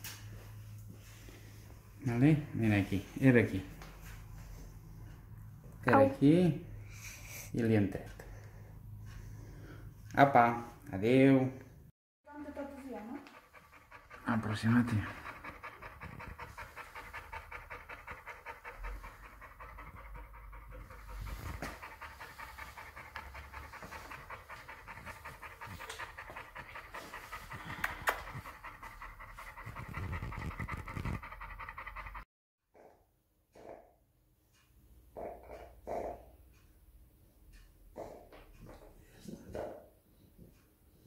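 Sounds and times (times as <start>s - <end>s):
dog panting: 12.3s - 32.9s.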